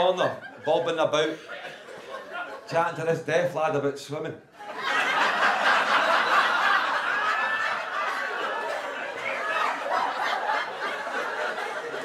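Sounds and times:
audience laughing: 0.2 - 3.0, 4.6 - 12.0.

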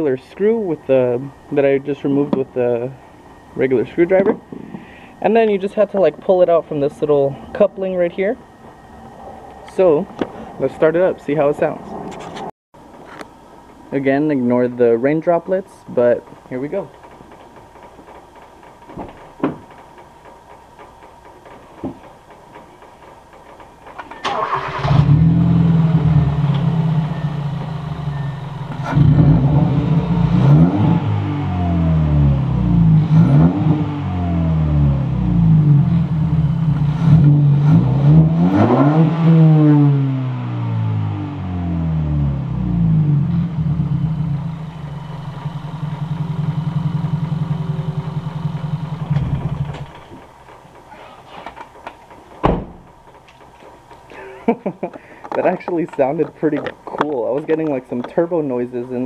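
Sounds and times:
car engine revving: 24.2 - 50.0.

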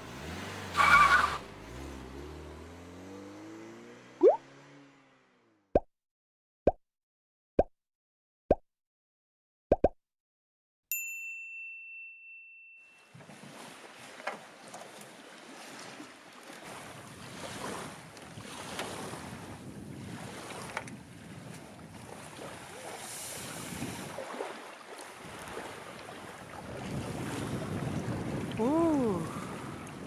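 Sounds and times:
water lapping: 13.1 - 30.0
wind on microphone: 17.2 - 22.6, 23.4 - 24.2, 26.5 - 30.0.

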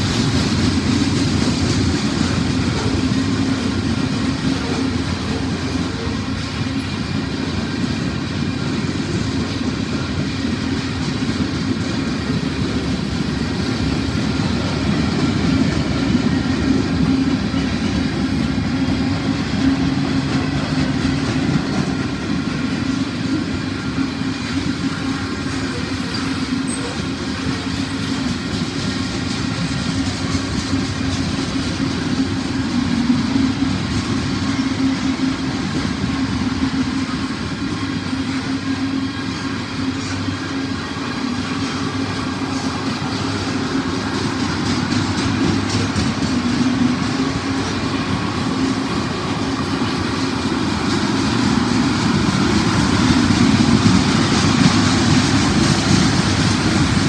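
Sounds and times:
freight train rolling past: 0.0 - 57.0.

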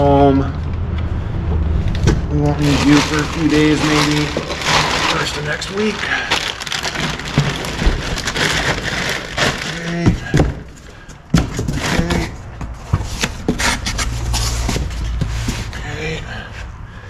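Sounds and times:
cardboard boxes being handled: 2.6 - 15.9.

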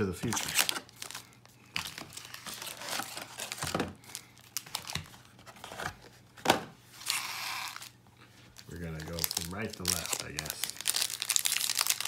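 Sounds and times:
foil packs crinkling: 0.0 - 5.1, 8.6 - 12.0.

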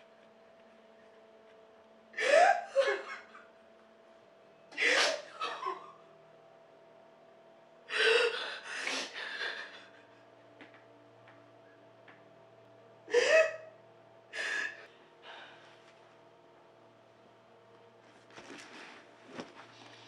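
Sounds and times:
faint steady hum: 0.0 - 20.0
woman sobbing: 2.2 - 3.5, 7.9 - 10.3, 13.1 - 13.8.

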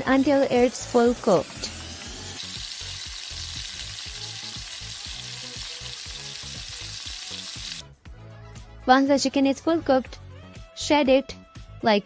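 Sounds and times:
chicken sizzling in hot oil: 0.0 - 7.8.

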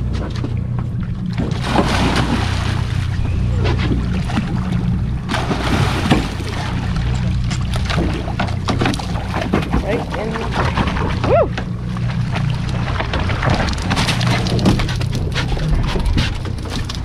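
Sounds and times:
boat engine idling: 0.0 - 17.0
water splashing and sloshing: 0.0 - 17.0.

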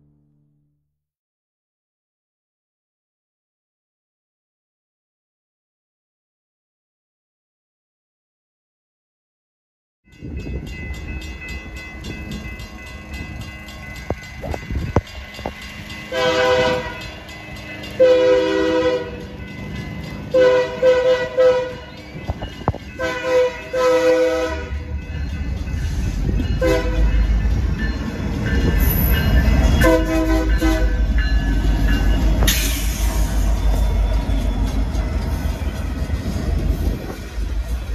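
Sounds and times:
diesel engines and wheels rumbling: 10.5 - 37.9
locomotive horn blasts: 16.1 - 17.2, 18.0 - 19.3, 20.3 - 21.9, 23.0 - 24.9, 26.6 - 27.2, 29.7 - 31.3.

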